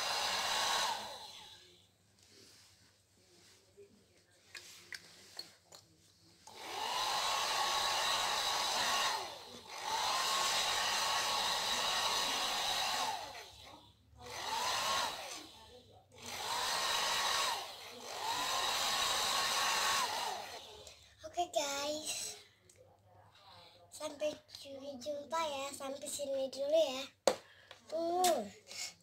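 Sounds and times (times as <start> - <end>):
hair dryer blowing: 0.0 - 1.8, 6.5 - 20.9.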